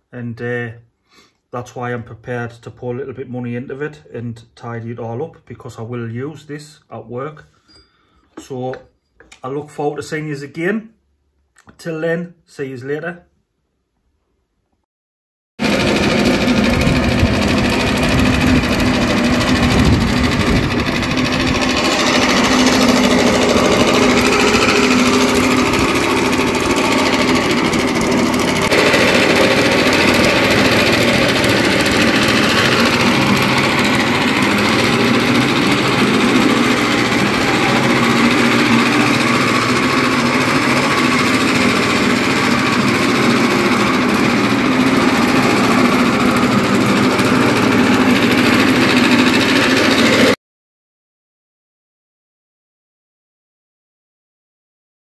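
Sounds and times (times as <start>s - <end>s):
lawnmower engine running: 15.6s - 50.4s.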